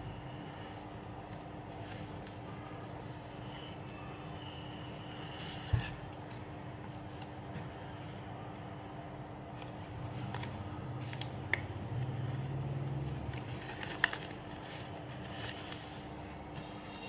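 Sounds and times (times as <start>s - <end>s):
paper crinkling: 13.3s - 17.0s.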